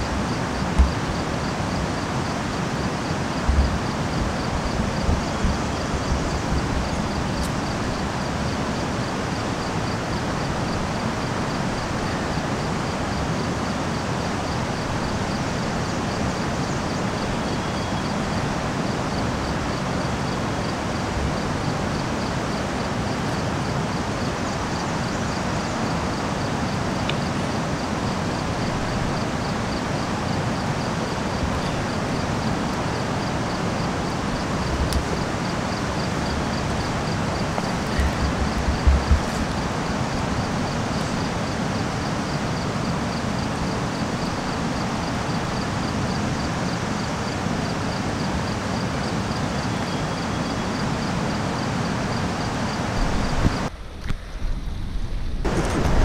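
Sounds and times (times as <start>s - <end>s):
steady rushing noise: 0.0s - 16.7s, 18.4s - 46.4s.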